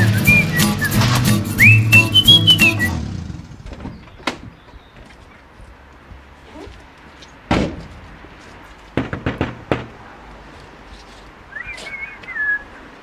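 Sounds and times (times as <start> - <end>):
person whistling a tune: 0.0 - 3.0, 11.6 - 12.7
van door slamming: 7.5 - 8.0
sharp knocks: 7.5 - 8.2, 8.9 - 10.0.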